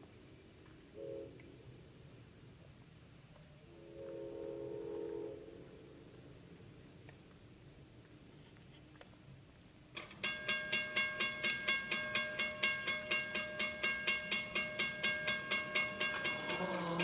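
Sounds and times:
railroad crossing bell ringing: 10.0s - 17.0s.

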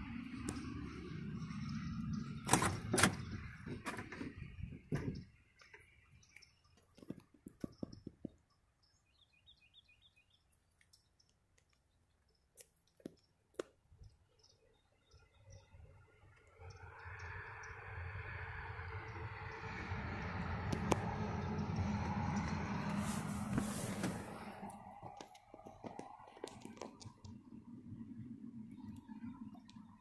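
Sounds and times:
steady low rumble: 16.7s - 25.9s.

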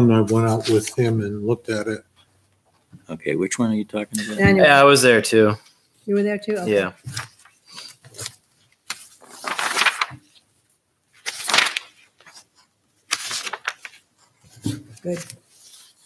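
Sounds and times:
paper rustling and shuffling: 0.4s - 1.1s, 6.7s - 16.0s.

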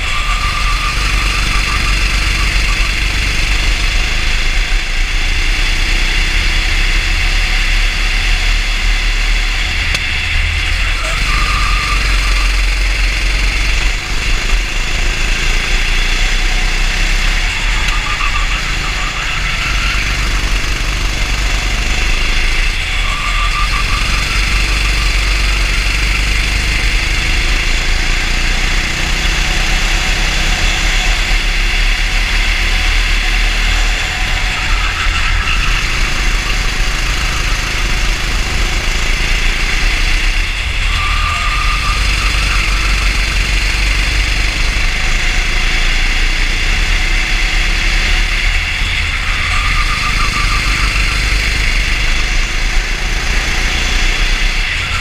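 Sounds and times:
go-kart engine running: 0.0s - 55.0s.

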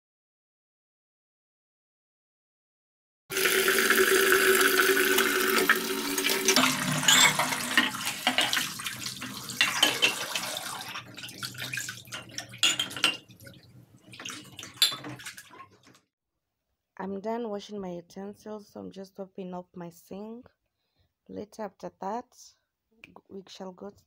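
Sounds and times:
tap running into basin: 3.3s - 16.0s
water splashing: 3.3s - 16.0s
clink of utensils and glass: 6.6s - 8.6s, 9.6s - 10.3s, 12.2s - 13.3s, 14.8s - 15.2s.

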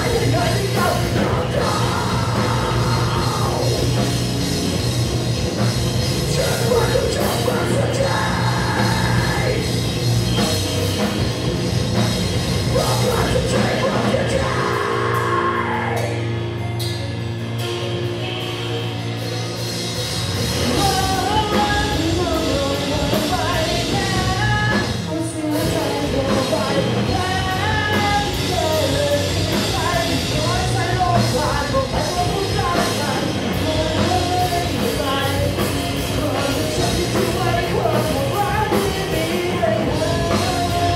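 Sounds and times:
lead singer singing: 0.0s - 4.2s, 6.2s - 10.1s, 12.6s - 16.3s, 20.6s - 40.9s
live rock band playing: 0.0s - 40.9s.

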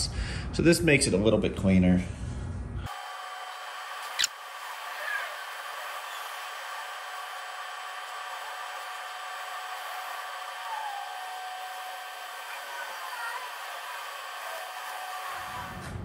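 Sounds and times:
sharp click: 4.0s - 4.4s.

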